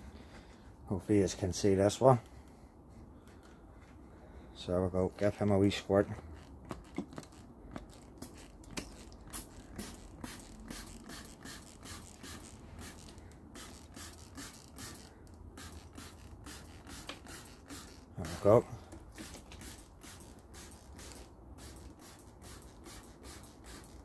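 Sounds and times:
trigger spray bottle squirting: 8.2 - 18.4, 19.0 - 24.0.

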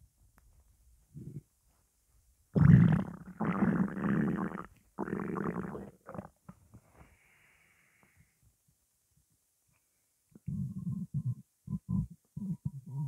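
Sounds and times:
stomach growling: 2.6 - 6.5, 10.4 - 13.0.

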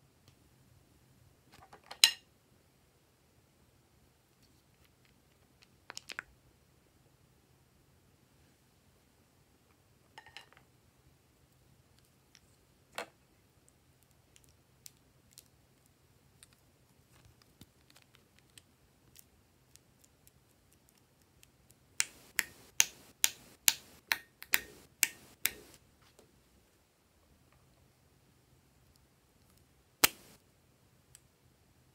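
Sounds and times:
stick clicking on wet slime: 22.0 - 25.8.

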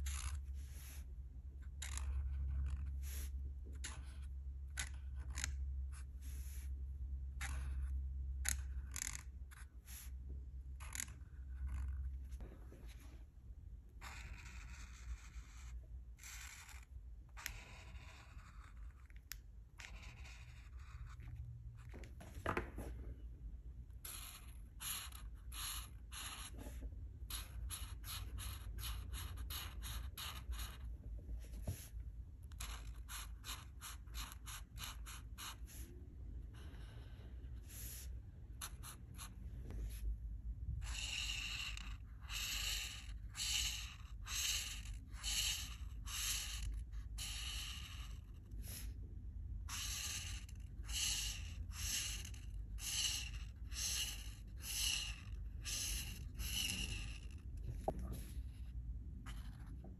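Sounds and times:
marker strokes on paper: 0.0 - 6.8, 7.4 - 13.1, 24.1 - 40.1, 49.6 - 59.7.

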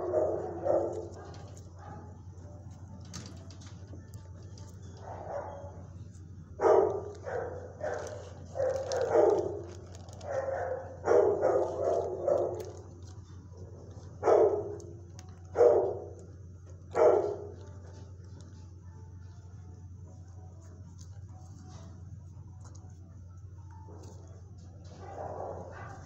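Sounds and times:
dog barking: 0.0 - 2.2, 5.0 - 5.9, 6.6 - 12.9, 14.1 - 16.2, 16.9 - 17.7, 24.9 - 26.0.

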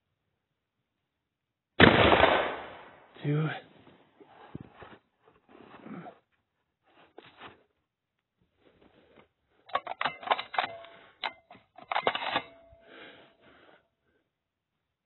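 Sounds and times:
handling clicks and rattles: 9.7 - 12.8.

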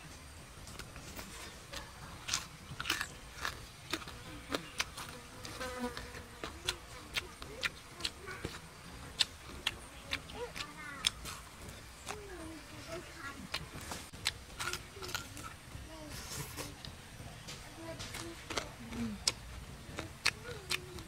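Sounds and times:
person chewing: 1.7 - 12.3, 12.9 - 15.6, 18.0 - 21.0.

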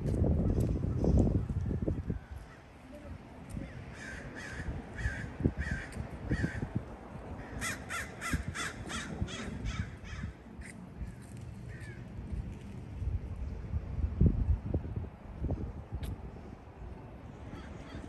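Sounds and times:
crows cawing: 3.9 - 6.7, 7.4 - 12.0, 17.5 - 18.0.

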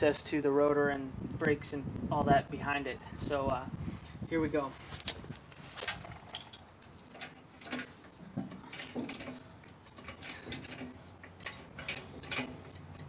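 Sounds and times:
floor jack clicking and clanking: 5.0 - 13.0.

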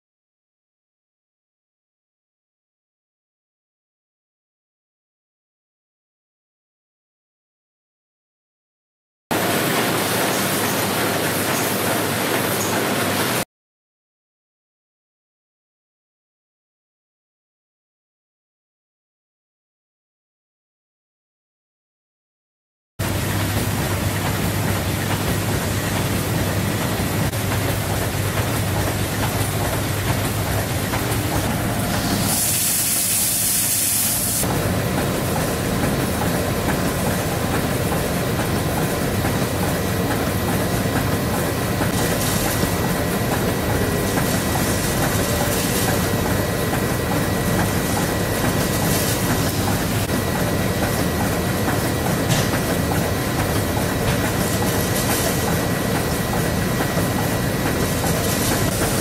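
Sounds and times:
machinery clatter and hum: 9.3 - 13.4, 23.0 - 59.0
hissing air burst: 31.6 - 34.5.

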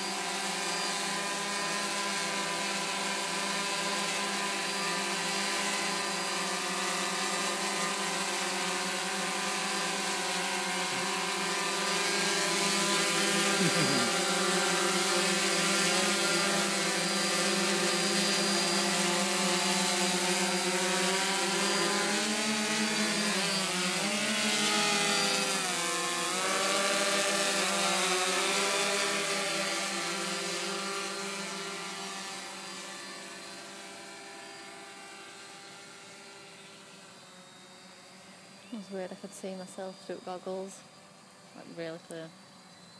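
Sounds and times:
drone motors buzzing whine: 0.0 - 42.9.

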